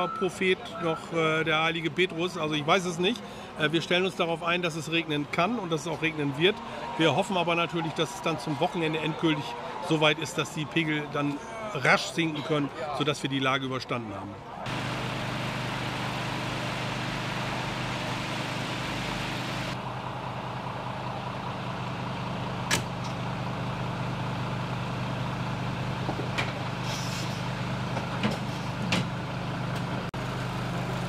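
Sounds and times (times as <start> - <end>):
diesel engine idling: 14.7 - 31.0.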